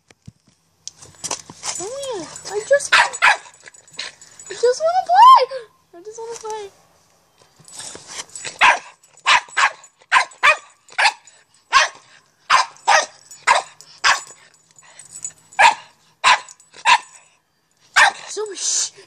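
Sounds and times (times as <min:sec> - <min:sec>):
dog barking: 0:02.9 - 0:03.6, 0:08.6 - 0:14.4, 0:15.6 - 0:17.2, 0:18.0 - 0:18.3.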